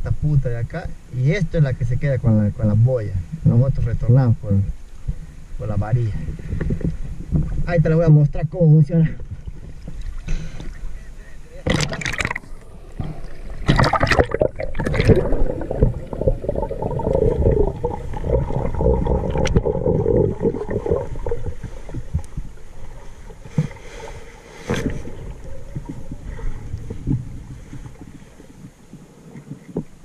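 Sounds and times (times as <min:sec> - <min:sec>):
underwater water gurgling: 0:11.6 - 0:30.0.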